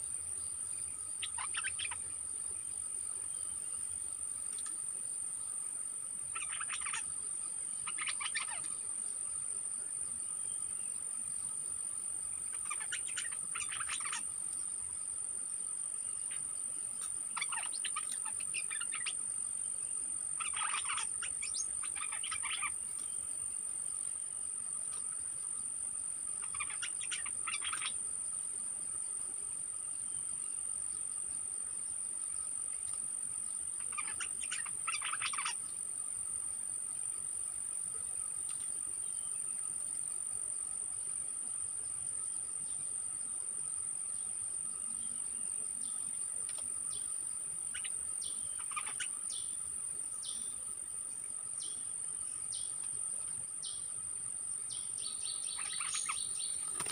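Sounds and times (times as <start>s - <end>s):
bulbul singing: 1.1s - 2.1s, 6.3s - 7.1s, 7.8s - 8.8s, 12.5s - 14.2s, 17.0s - 19.2s, 20.4s - 22.8s, 26.4s - 28.0s, 33.8s - 35.6s, 47.7s - 49.6s, 54.7s - 56.9s.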